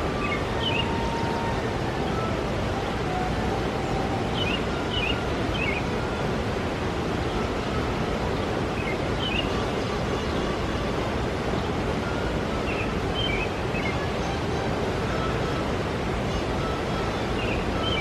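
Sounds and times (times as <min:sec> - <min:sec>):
rushing water: 0:00.0 - 0:18.0.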